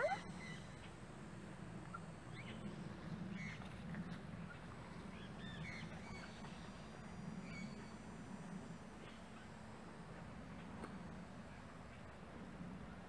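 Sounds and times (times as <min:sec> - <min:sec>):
faint bird calls: 0:00.0 - 0:01.0
low steady hum: 0:00.0 - 0:13.0.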